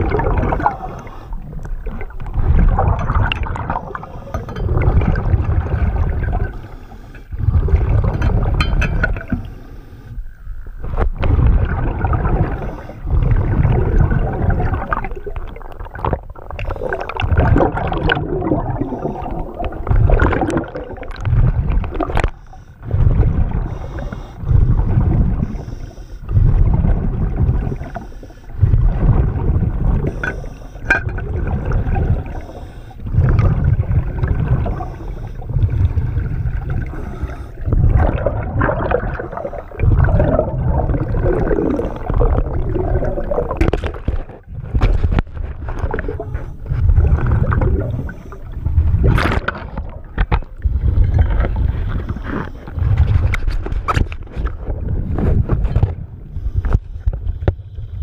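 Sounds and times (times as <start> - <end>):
bubbles rumbling: 0.0 - 9.5, 10.4 - 56.4
diver breathing through regulator: 0.2 - 2.9, 3.6 - 8.2, 9.2 - 10.8, 12.4 - 13.4, 16.5 - 17.5, 18.4 - 20.2, 21.8 - 26.8, 27.4 - 43.6, 46.0 - 49.0, 50.6 - 53.3, 56.3 - 58.0.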